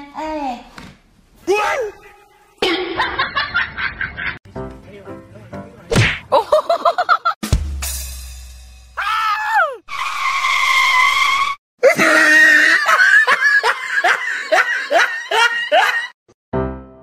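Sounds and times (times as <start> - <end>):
person screaming: 9.0 - 9.9, 11.8 - 12.9
rapid hard laughter: 11.8 - 16.2.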